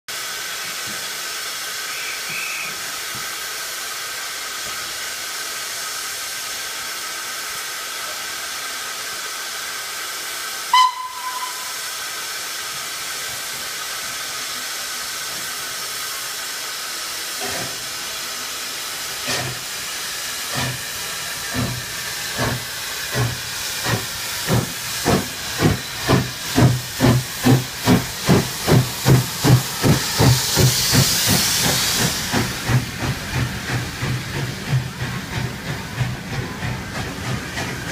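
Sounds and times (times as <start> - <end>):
steam locomotive hissing: 0.1 - 37.9
train whistle toot: 1.9 - 2.8, 10.7 - 11.9
locomotive exhaust chuffs: 10.7 - 37.9.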